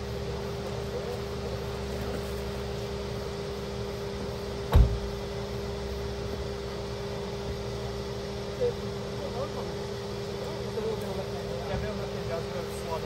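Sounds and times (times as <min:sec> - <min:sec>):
mechanical hum with low rumble: 0:00.0 - 0:13.0
heavy thump: 0:04.7 - 0:05.2.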